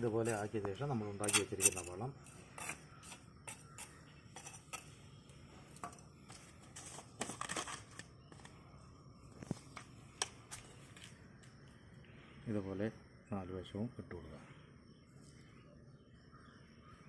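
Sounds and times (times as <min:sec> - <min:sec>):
spoon scraping in potting soil: 0:00.0 - 0:08.5.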